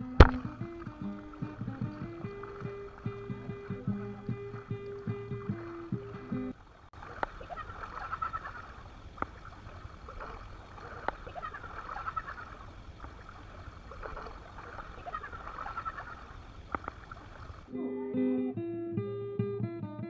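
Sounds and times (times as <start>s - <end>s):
high chattering cackling calls: 7.3s - 8.9s, 10.2s - 12.7s, 14.6s - 18.6s.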